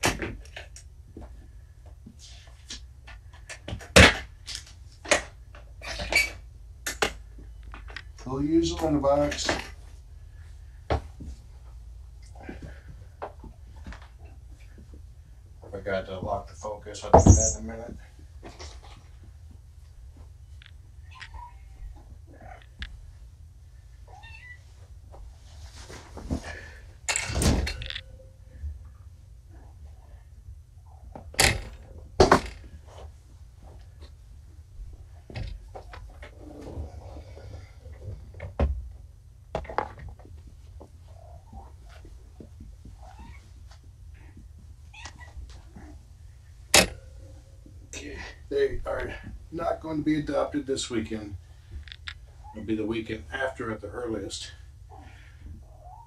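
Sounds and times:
kittens meowing: 21.0s - 22.7s, 24.1s - 24.6s, 43.0s - 43.5s
kittens meowing faintly: 43.0s - 43.5s.

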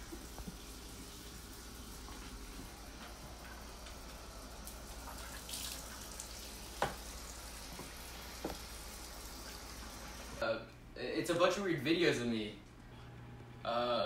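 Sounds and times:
sink tap running: 0.0s - 10.4s
water splashes: 4.6s - 7.4s.

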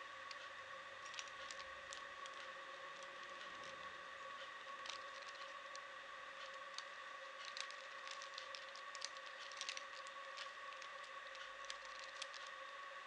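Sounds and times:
faint hum: 0.0s - 13.0s
plastic puzzle cube clicking: 1.0s - 3.8s, 4.8s - 5.5s, 6.4s - 12.5s.

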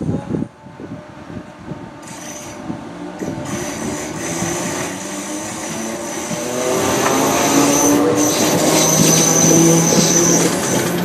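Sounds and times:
electric train motors whining: 3.2s - 11.0s
high squeal: 3.2s - 11.0s.

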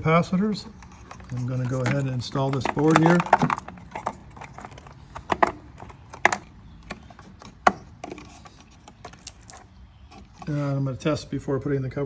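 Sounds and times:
handling rustle: 0.3s - 10.8s
plastic parts clicking into place: 0.7s - 10.4s.

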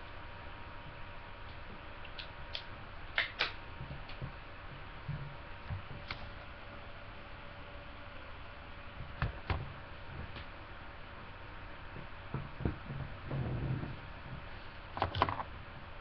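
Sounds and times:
faint electrical hum: 0.0s - 16.0s.

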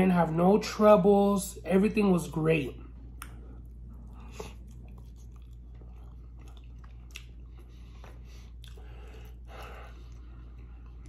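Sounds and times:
person chewing food: 2.8s - 11.0s
wet mouth clicks and smacks: 3.0s - 11.0s.

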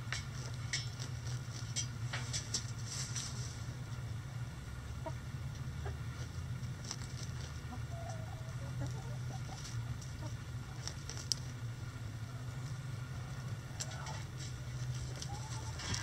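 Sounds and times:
steady low rumble: 0.0s - 16.0s
hens clucking softly: 4.9s - 11.6s, 12.2s - 16.0s
hen wavering call: 15.1s - 16.0s.

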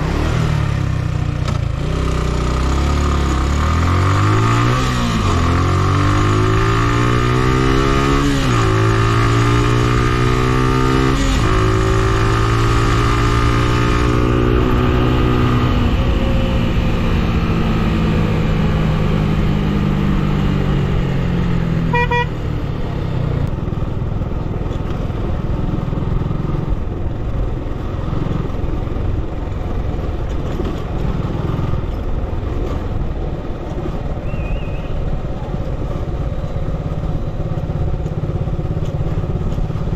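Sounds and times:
vehicle engine revving: 0.0s - 23.5s
short horn toot: 21.9s - 22.4s.

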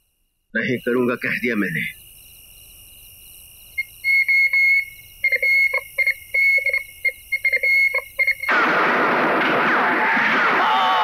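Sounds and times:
high whistle-like tune: 4.0s - 8.5s
gunfire: 8.5s - 11.0s.

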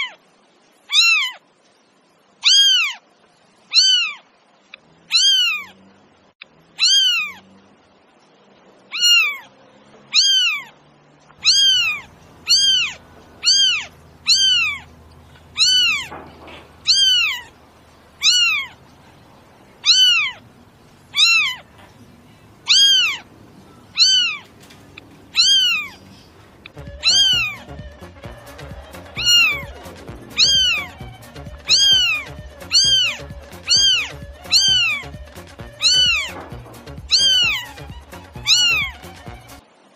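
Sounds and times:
cat meowing: 0.0s - 0.2s, 0.9s - 1.4s, 2.4s - 3.0s, 3.7s - 4.3s, 5.0s - 5.8s, 6.7s - 7.5s, 8.9s - 9.5s, 10.1s - 10.8s, 11.4s - 18.9s, 19.8s - 20.5s, 21.1s - 28.0s, 29.0s - 39.4s
background music with soft beat: 26.7s - 39.6s.

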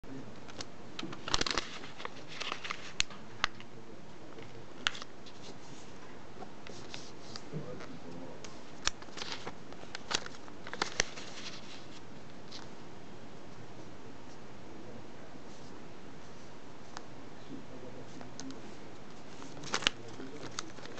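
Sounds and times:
paper folding and creasing: 0.5s - 3.6s, 6.7s - 12.7s, 19.1s - 20.9s.

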